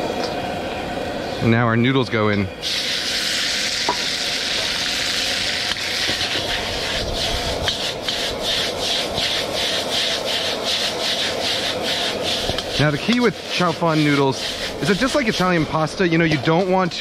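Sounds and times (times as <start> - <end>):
noodles sizzling in a wok: 2.6 - 15.3.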